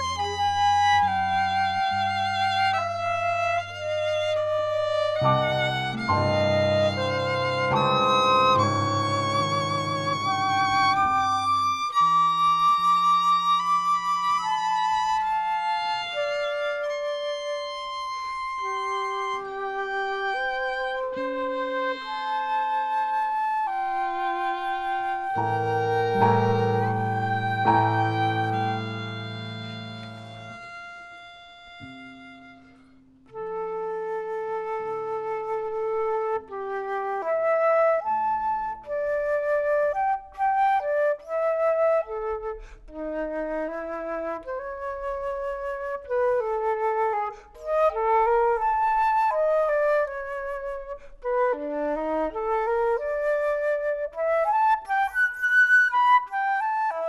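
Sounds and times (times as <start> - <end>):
quieter lower notes: 0.0 - 55.0
flute melody: 0.0 - 57.0
ensemble chord: 23.9 - 30.8.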